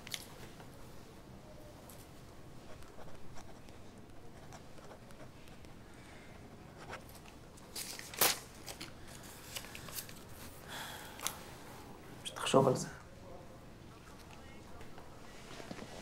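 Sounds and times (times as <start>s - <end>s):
paper rustling: 6.8s - 10.6s.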